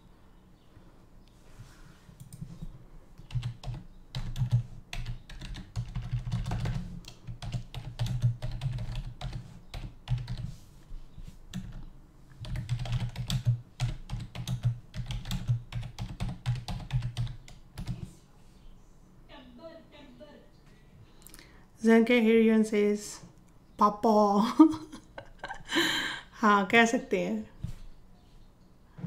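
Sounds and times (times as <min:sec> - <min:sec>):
computer keyboard typing: 0:03.2 - 0:10.5, 0:11.5 - 0:18.1.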